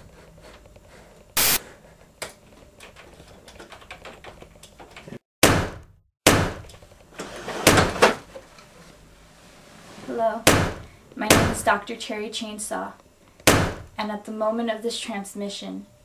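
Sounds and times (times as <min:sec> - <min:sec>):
loud sharp thumps: 0:13.4 - 0:14.0.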